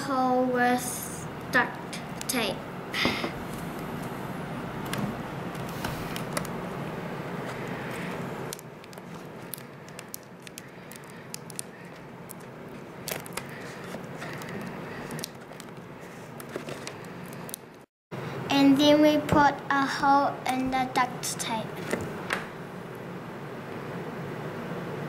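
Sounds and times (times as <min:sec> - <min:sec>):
duct tape crinkling: 0:04.8 - 0:06.6, 0:07.5 - 0:17.9.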